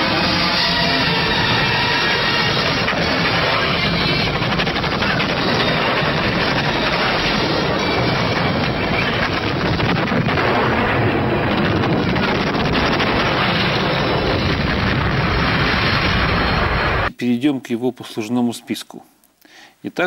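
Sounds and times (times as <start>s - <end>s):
gunfire: 0.0s - 16.5s
cannon fire: 0.0s - 17.1s
explosions: 0.0s - 17.1s.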